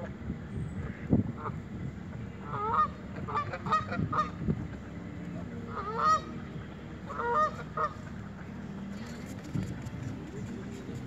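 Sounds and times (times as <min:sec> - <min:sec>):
geese honking: 0:02.4 - 0:04.4, 0:05.7 - 0:06.4, 0:07.0 - 0:08.4.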